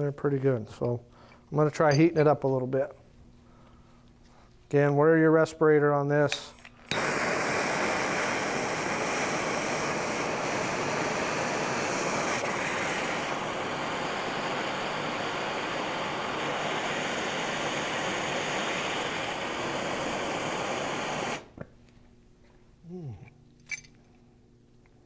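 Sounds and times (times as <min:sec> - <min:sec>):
gas torch hissing: 0:06.9 - 0:21.6.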